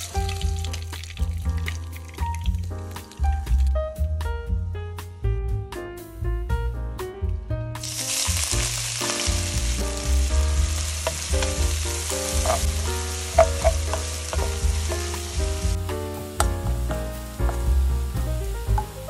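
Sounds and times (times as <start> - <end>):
food sizzling in hot oil: 0.0 - 3.7, 7.8 - 19.0
background music: 0.0 - 19.0.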